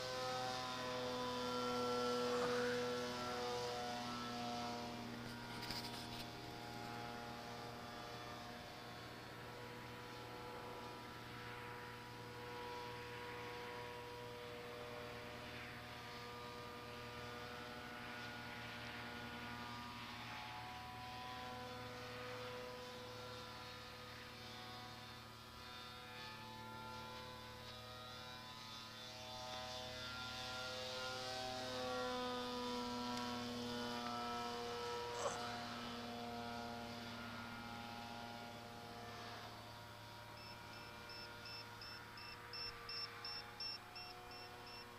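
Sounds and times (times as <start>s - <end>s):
rc plane motor whining: 0.0s - 44.9s
electrical hum: 31.8s - 44.9s.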